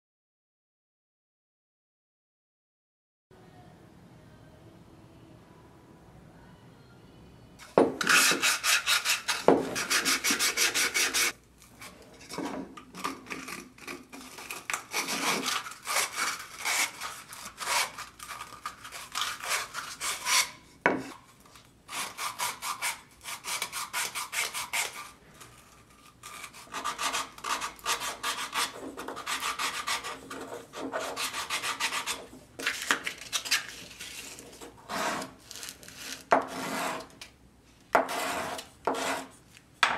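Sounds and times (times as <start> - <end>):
wood sanding by hand: 8.0 - 11.4, 26.6 - 32.3, 38.1 - 39.3.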